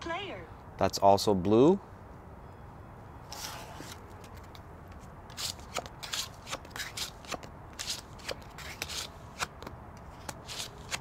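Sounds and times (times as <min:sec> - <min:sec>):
playing cards snapping and sliding: 0:05.3 - 0:11.0.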